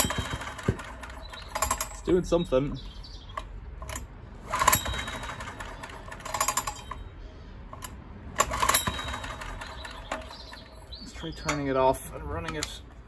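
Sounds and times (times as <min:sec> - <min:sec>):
sharp engine pops: 0:00.0 - 0:02.0.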